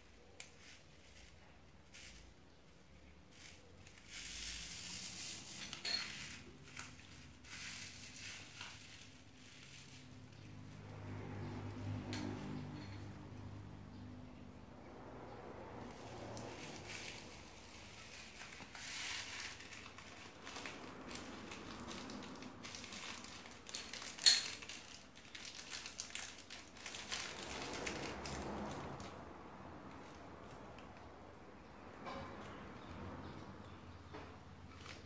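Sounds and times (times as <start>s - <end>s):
plastic bag crinkling: 3.2s - 10.4s, 15.9s - 29.2s.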